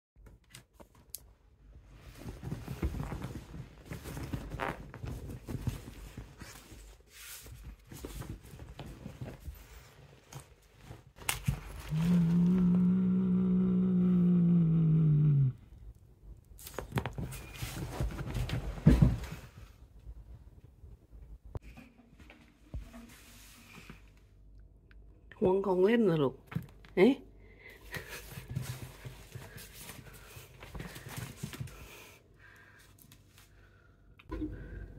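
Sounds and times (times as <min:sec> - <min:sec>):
rustling and knocks of handling: 0:01.8 - 0:12.3, 0:16.6 - 0:24.1
cat growling low: 0:11.9 - 0:15.8.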